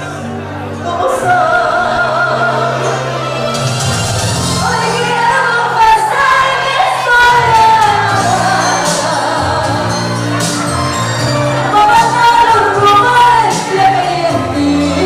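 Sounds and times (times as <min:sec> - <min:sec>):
amplified backing music: 0:00.0 - 0:15.0
woman singing into a microphone: 0:00.8 - 0:03.2, 0:04.6 - 0:10.2, 0:11.6 - 0:15.0.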